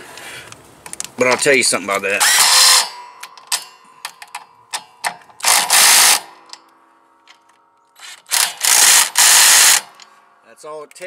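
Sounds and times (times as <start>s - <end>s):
impact driver bursts: 2.2s - 3.2s, 5.4s - 6.5s, 8.0s - 10.0s.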